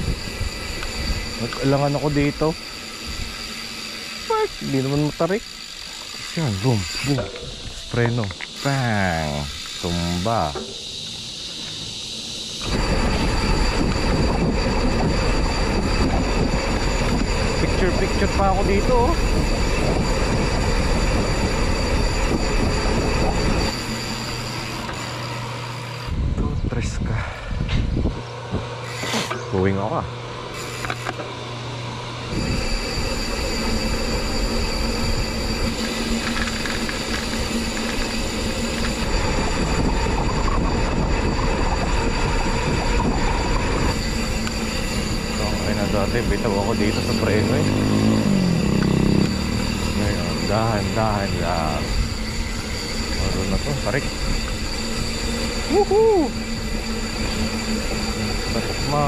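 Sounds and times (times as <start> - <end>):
wind rushing over microphone: 0.0 - 3.4, 12.6 - 24.5, 26.1 - 28.8, 32.2 - 59.0
bike tyre rumble and road noise: 0.0 - 25.0, 32.2 - 59.0.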